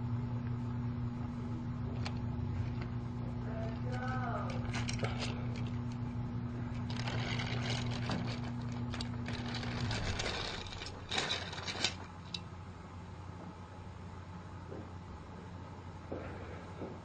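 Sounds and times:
clicking and rattling: 0:06.7 - 0:12.4
toy train motor whirring: 0:06.9 - 0:12.0.

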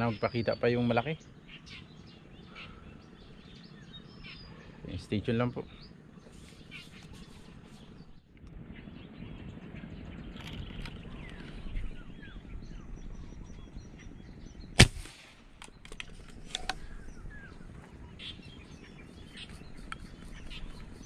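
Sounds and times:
birds chirping faintly: 0:00.0 - 0:21.0
airgun shot: 0:14.7 - 0:17.0.

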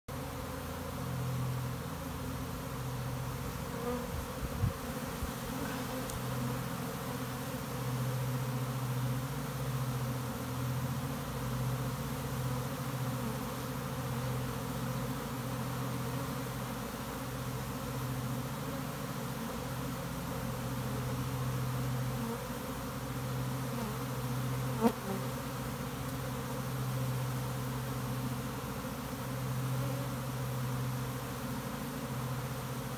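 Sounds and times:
bees humming: 0:00.1 - 0:32.9.

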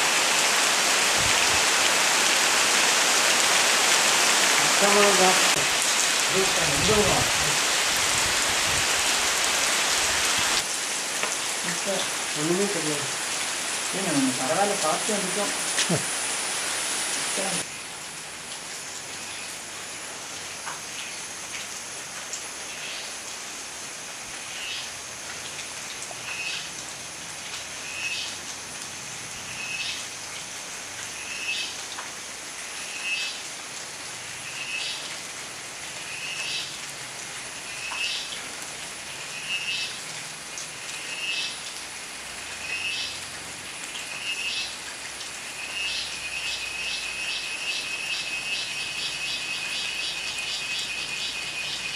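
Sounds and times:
steady rain hissing: 0:00.0 - 0:51.9.

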